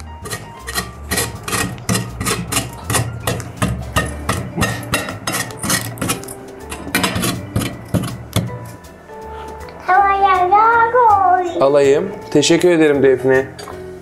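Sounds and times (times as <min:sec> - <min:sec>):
background music: 0:00.0 - 0:14.0
potato grated on metal grater: 0:00.2 - 0:08.2.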